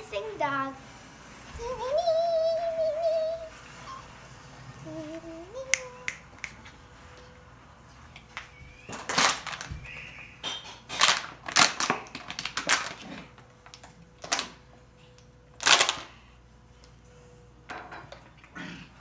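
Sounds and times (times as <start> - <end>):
plastic bottle crinkling: 8.9 - 10.0, 10.9 - 13.1, 15.6 - 16.1.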